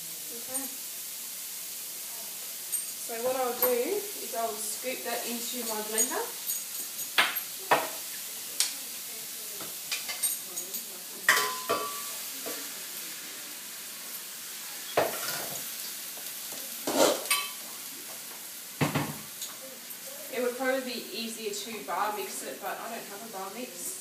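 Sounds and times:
hot pan sizzling: 0.0s - 24.0s
metal utensil scraping pan: 16.8s - 17.6s.

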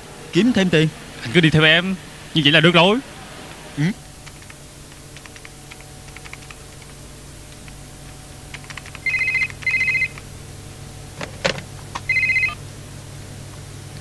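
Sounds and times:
laptop keyboard tapping: 4.2s - 10.3s
cordless telephone ringing: 9.0s - 10.2s, 12.1s - 12.6s.

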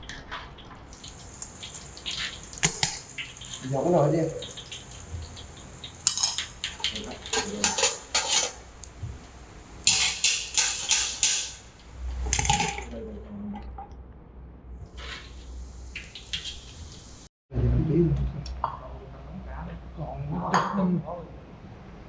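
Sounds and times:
pots and pans clattering: 0.0s - 8.7s, 9.8s - 13.0s.

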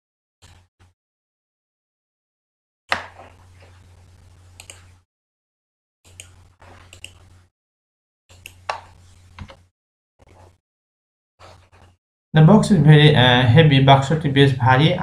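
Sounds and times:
computer mouse clicks: 4.6s - 4.9s, 6.1s - 7.3s, 8.3s - 8.7s.

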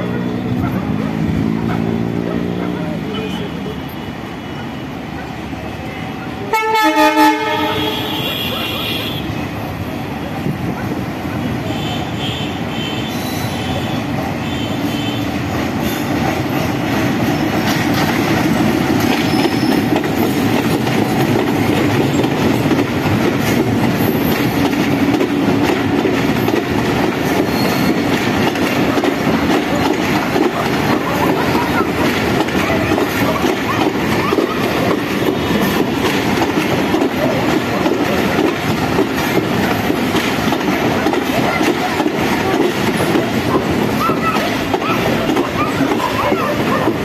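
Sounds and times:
diesel locomotive engine: 0.0s - 47.0s
train horn blast: 6.5s - 9.4s
train wheels clattering over rail joints: 15.5s - 47.0s
high wheel squeals: 19.2s - 19.9s, 27.3s - 28.1s.

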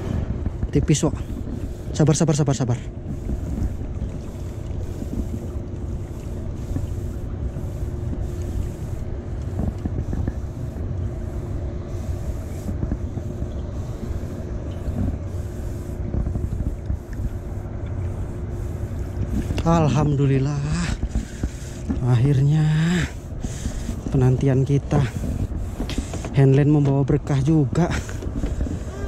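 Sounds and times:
faint steady hum: 0.0s - 29.0s
wind buffeting microphone: 0.0s - 29.0s.

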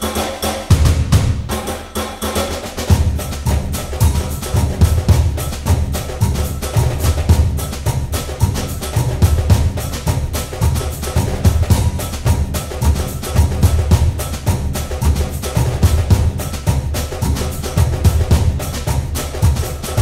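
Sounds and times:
clicking percussion: 0.0s - 20.0s
pulsing low drum beat: 0.0s - 20.0s.

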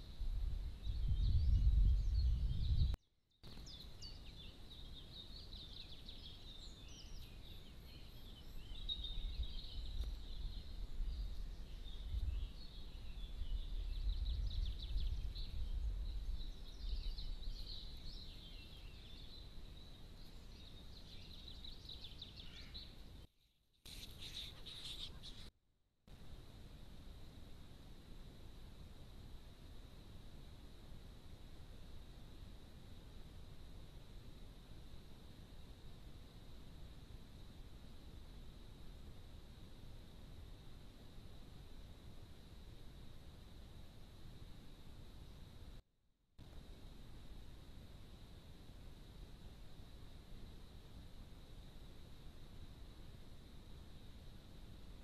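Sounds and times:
small birds singing: 0.0s - 23.3s, 23.9s - 25.5s.

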